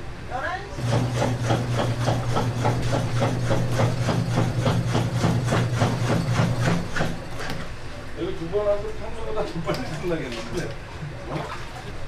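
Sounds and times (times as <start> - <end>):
machine humming: 0.7 - 8.1.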